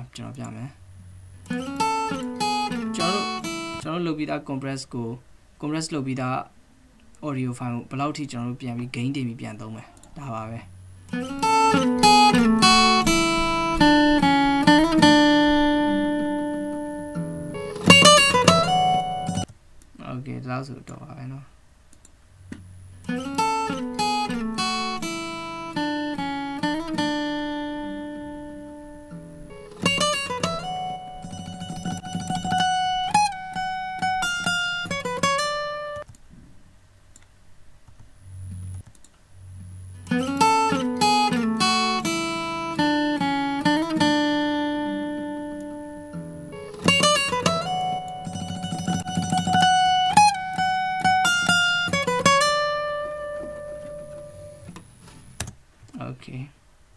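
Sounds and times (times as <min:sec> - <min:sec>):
guitar strummed and picked: 0:01.2 - 0:03.8, 0:11.0 - 0:19.5, 0:22.6 - 0:36.0, 0:39.5 - 0:55.0.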